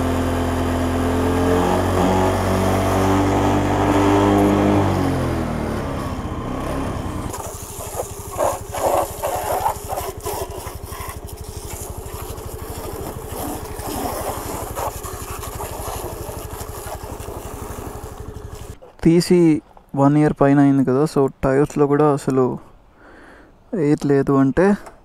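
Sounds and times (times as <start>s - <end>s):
small engine idling: 0.0s - 18.8s
garden hose spraying water: 7.2s - 18.8s.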